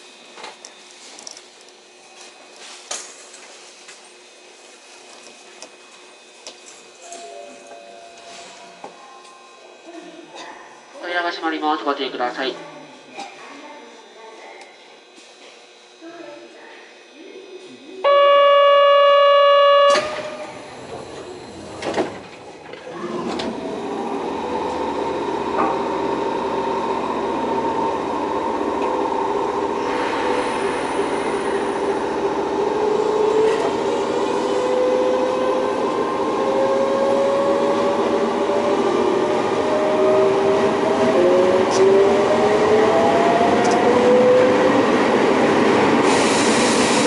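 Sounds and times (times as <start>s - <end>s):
steady electronic tone: 18.0s - 21.3s
train motors whining: 18.0s - 47.0s.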